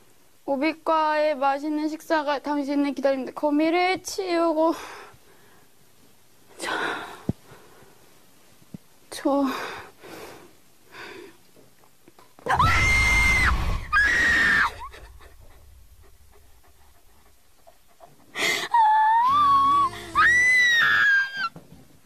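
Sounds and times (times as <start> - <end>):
woman screaming: 12.5 - 15.4, 18.7 - 21.5.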